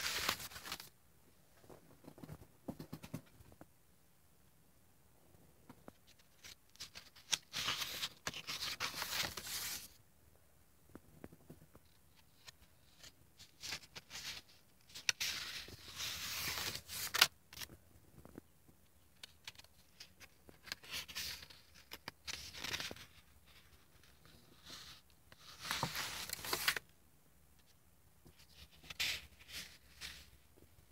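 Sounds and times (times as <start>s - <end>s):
stiff pages rustling: 0.0s - 0.9s, 5.9s - 10.0s, 12.1s - 17.7s, 19.2s - 26.8s
paper handling clicks: 25.7s - 26.8s.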